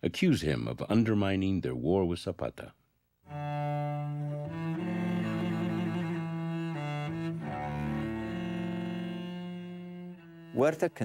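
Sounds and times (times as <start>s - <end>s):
low bowed strings: 3.3s - 11.0s.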